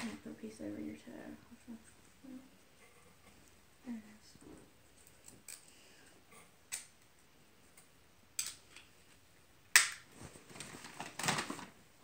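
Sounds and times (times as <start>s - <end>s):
tape rustle: 10.0s - 12.0s.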